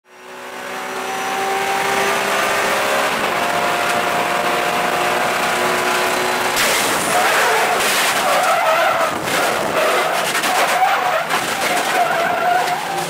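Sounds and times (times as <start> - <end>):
car engine at high speed: 0.0 - 13.0
cabin road noise rush: 0.1 - 13.0.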